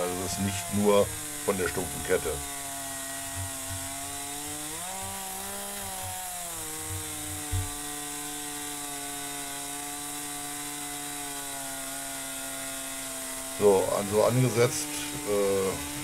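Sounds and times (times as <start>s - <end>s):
chainsaw cutting wood: 0.0s - 16.0s
thump: 7.4s - 7.8s.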